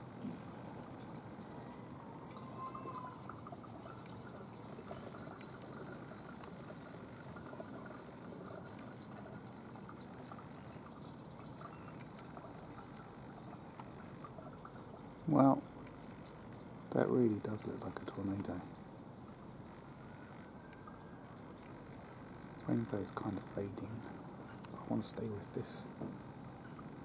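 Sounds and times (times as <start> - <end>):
low background hiss: 0.0 - 27.0
brief faint tone: 2.3 - 3.3.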